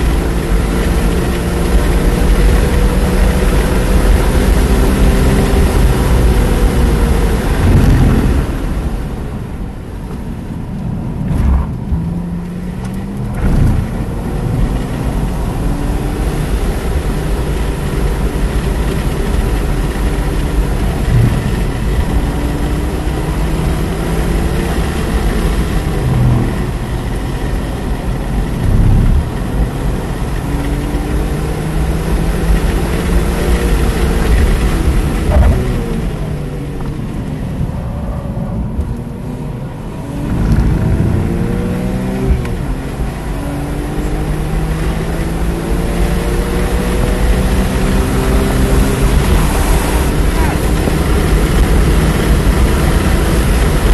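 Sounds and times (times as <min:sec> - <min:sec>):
car engine accelerating and braking: 0:00.0 - 0:53.9.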